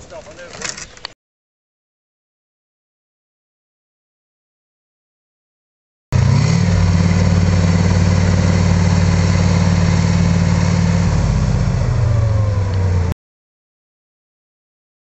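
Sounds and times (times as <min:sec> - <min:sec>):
tank diesel engine running: 0:06.1 - 0:13.2.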